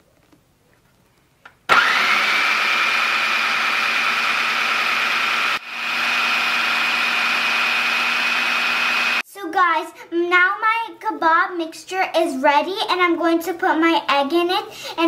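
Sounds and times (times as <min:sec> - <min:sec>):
food processor motor whining: 0:01.7 - 0:09.2.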